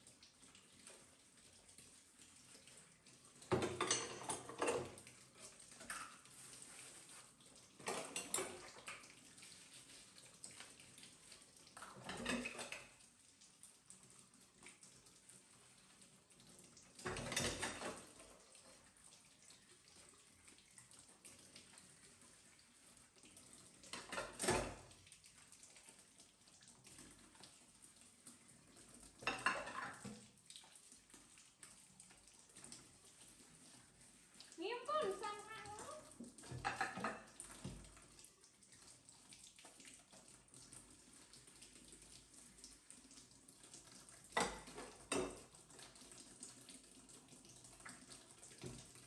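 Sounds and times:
tap water running: 0.0 - 49.0
dishes clattering in a steel sink: 3.5 - 5.1, 7.8 - 8.9, 12.0 - 12.8, 17.0 - 18.1, 23.9 - 24.9, 29.2 - 30.1, 36.4 - 37.6, 44.4 - 45.5.

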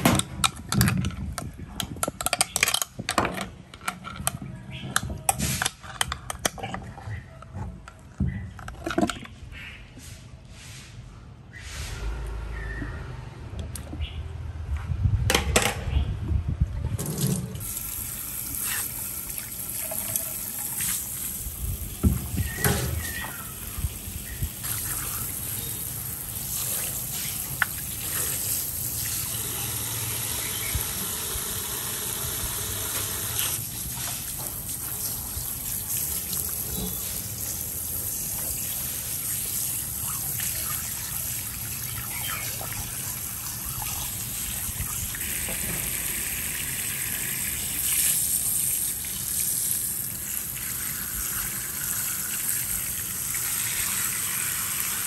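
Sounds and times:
running water splashing: 17.0 - 55.0.

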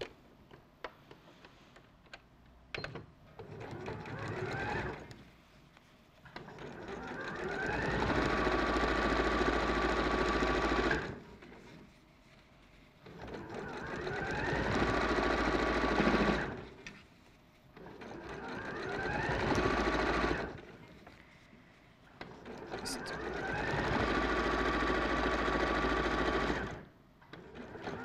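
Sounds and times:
sewing machine stitching: 2.9 - 5.2, 6.3 - 11.8, 13.0 - 16.8, 17.8 - 20.8, 22.2 - 28.0.

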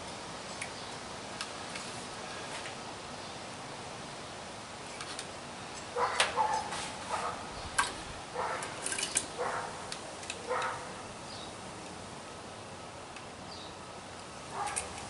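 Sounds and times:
dog barking: 6.0 - 7.4, 8.4 - 8.6, 9.4 - 9.8, 10.5 - 10.9, 14.5 - 14.9.

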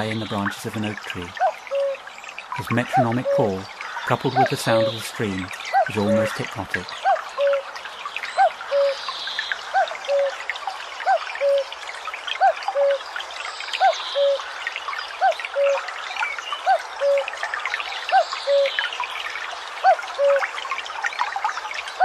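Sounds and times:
cuckoo calling: 0.0 - 11.8, 12.4 - 13.1, 13.8 - 14.5, 15.2 - 17.4, 18.1 - 19.2, 19.8 - 20.5
small birds chirping: 0.0 - 20.5
stream babbling: 0.0 - 22.0.

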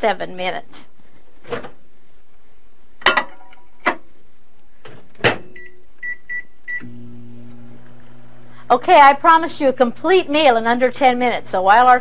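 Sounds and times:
microwave oven humming: 6.7 - 12.0.

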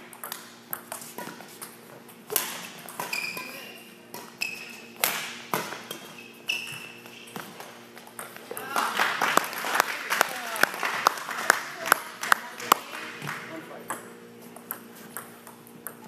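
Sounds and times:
shoes squeaking on court: 0.7 - 8.4
racket striking shuttlecock: 2.3 - 6.0.

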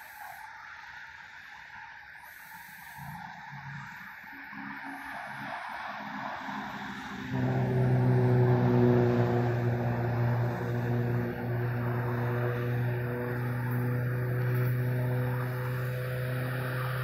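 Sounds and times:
train horn blast: 7.3 - 17.0.

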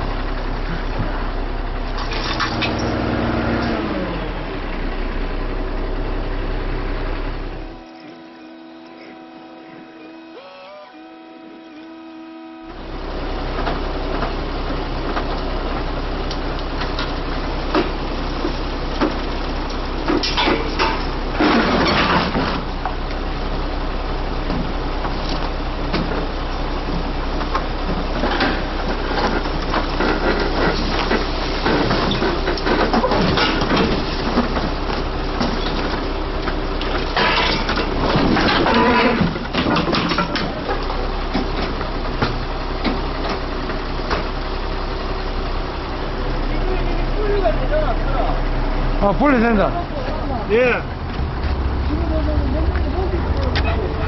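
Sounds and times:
truck engine running: 0.0 - 54.0
knocks and clanks: 20.0 - 22.7, 26.9 - 43.4, 50.9 - 54.0.

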